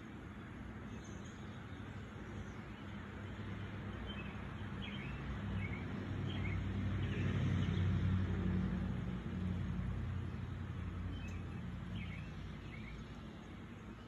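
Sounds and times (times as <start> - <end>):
passing vehicle engine hum: 1.5 - 14.0.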